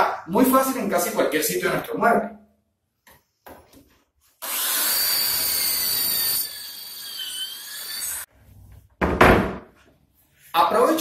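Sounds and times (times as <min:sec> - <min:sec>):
power drill boring: 0:04.4 - 0:08.3
heavy thump of panel: 0:09.0 - 0:09.7.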